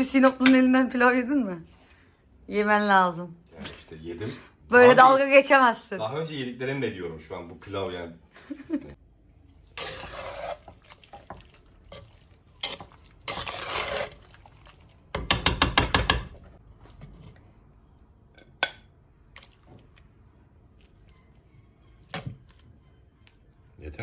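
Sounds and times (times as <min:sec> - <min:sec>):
metal ladle scraping clay pot: 0:09.7 - 0:14.3.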